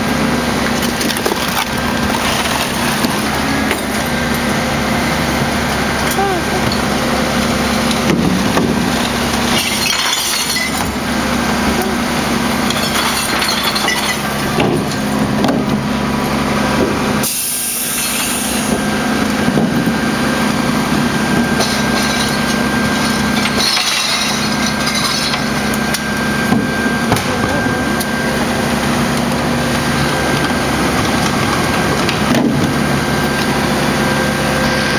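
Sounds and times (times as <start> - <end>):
garbage truck running: 0.0 - 34.9
clattering clinking glass: 9.5 - 11.0, 12.7 - 14.4, 21.6 - 25.7.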